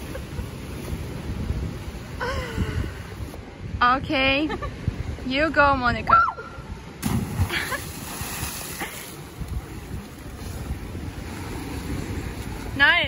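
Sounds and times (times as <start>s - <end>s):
moving sea water: 0.0s - 3.8s, 6.4s - 13.0s
wind buffeting microphone: 0.0s - 13.0s
splash into water: 7.0s - 9.2s.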